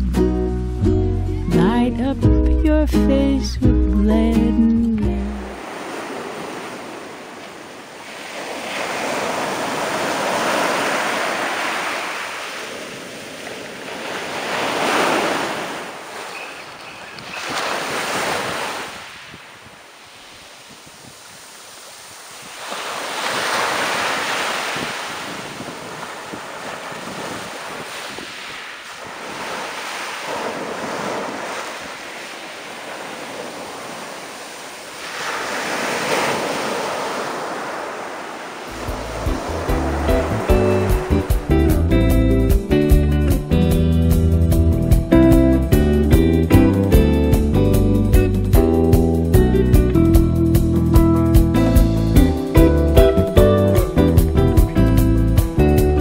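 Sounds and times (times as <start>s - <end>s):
surf washing up shingle: 5.2s - 43.7s.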